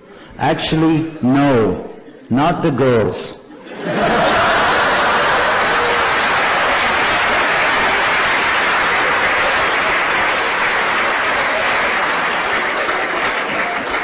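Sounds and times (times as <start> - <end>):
audience applauding: 4.0 - 14.0.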